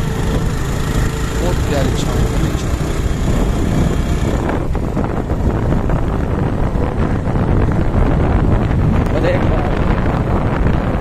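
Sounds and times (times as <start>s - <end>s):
motorcycle engine rumble: 0.0s - 11.0s
wind buffeting microphone: 0.0s - 11.0s.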